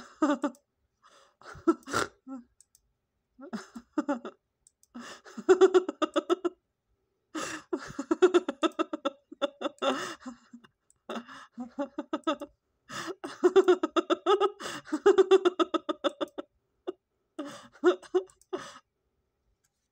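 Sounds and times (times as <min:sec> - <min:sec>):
person laughing hard: 0:00.0 - 0:00.6, 0:01.4 - 0:02.5, 0:03.4 - 0:04.4, 0:05.0 - 0:06.6, 0:07.4 - 0:18.8.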